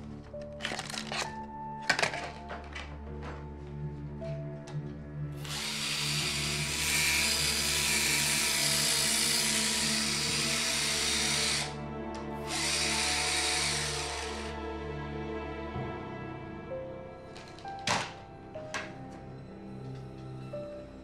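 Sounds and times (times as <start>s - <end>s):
cordless drill running: 5.4s - 11.8s, 12.4s - 14.6s.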